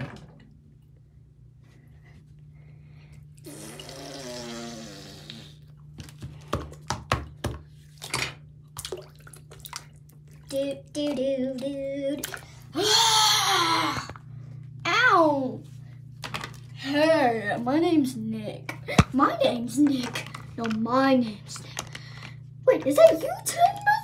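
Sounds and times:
water splashing in a sink: 0:07.6 - 0:14.0, 0:22.9 - 0:24.0.

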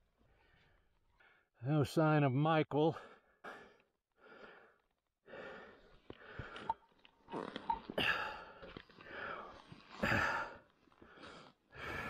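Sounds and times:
person breathing hard: 0:03.0 - 0:06.8, 0:08.0 - 0:12.0
riding gear clicks and scuffs: 0:08.6 - 0:11.6.

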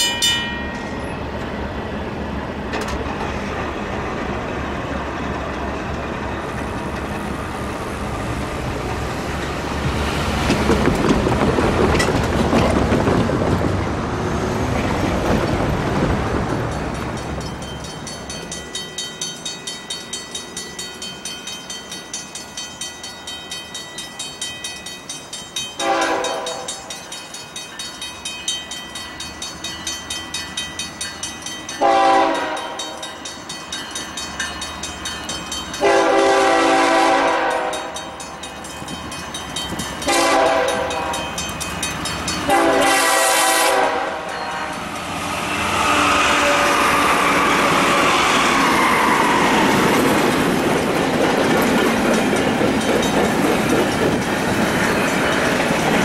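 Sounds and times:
railroad crossing bell ringing: 0:00.0 - 0:01.7, 0:16.7 - 0:46.1, 0:50.5 - 0:56.0
train rumbling past: 0:00.0 - 0:56.0
locomotive air horn blasts: 0:25.8 - 0:26.7, 0:31.8 - 0:33.0, 0:35.8 - 0:38.0, 0:40.1 - 0:41.1, 0:42.5 - 0:44.8, 0:45.5 - 0:48.3.

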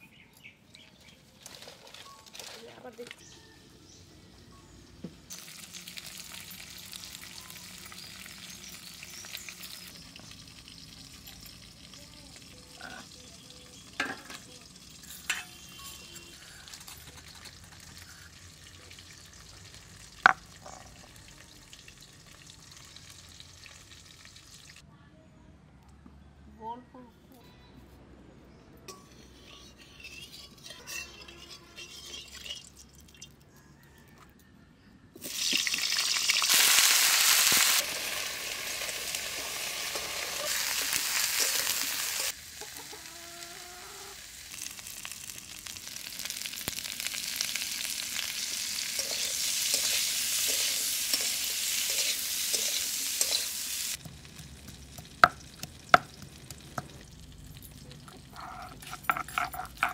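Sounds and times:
vegetables sizzling in hot oil: 0:05.2 - 0:24.8, 0:35.2 - 0:58.0.

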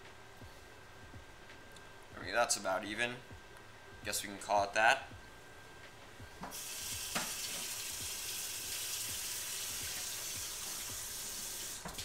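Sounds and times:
faucet water running into sink: 0:06.5 - 0:12.0.

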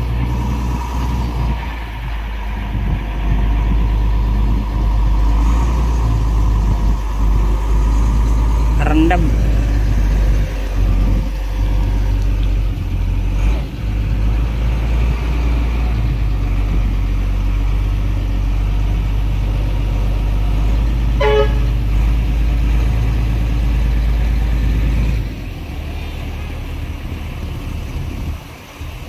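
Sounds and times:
diesel engine rumbling: 0:00.0 - 0:29.0
vehicle horn toot: 0:21.2 - 0:21.8.

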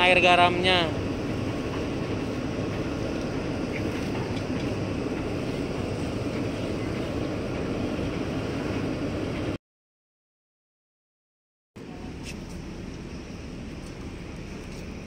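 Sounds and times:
ferry machinery rumbling: 0:00.0 - 0:09.6, 0:11.8 - 0:15.0.

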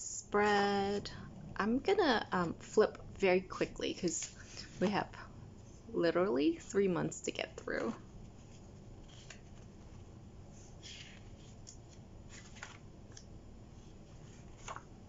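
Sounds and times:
planner pages being turned: 0:07.7 - 0:15.0.

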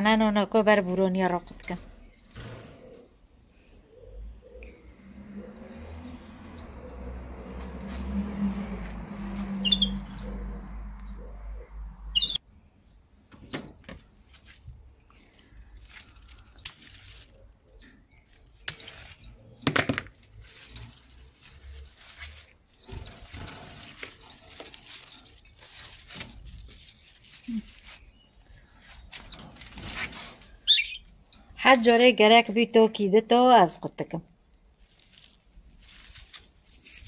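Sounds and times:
leaves rustling: 0:14.0 - 0:31.2, 0:34.6 - 0:37.0
scissors snipping stems: 0:16.2 - 0:17.4, 0:18.4 - 0:19.2.

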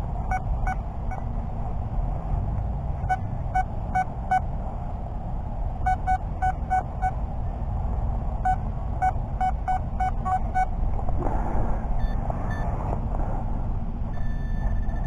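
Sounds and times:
metal detector beeps: 0:00.3 - 0:01.2, 0:05.8 - 0:07.2, 0:08.4 - 0:10.7, 0:12.0 - 0:12.8, 0:14.1 - 0:15.0.

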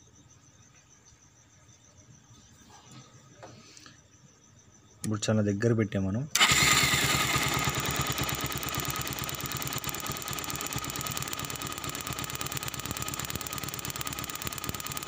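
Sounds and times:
motorcycle engine idling: 0:06.4 - 0:15.0.

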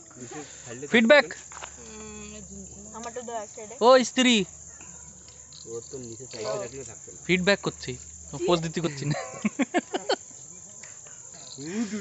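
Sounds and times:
high-pitched insect drone: 0:00.0 - 0:12.0
people's voices: 0:00.0 - 0:12.0.

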